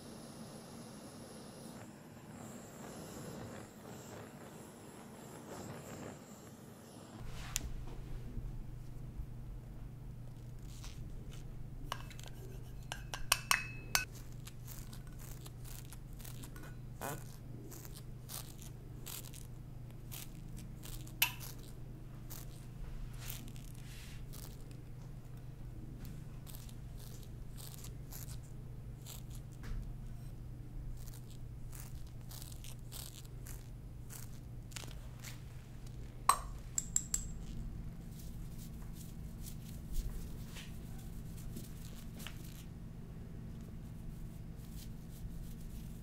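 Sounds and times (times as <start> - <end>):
steady low hum: 0.0 - 46.0
paintbrush and glass jar taps: 11.9 - 14.1, 36.3 - 37.6.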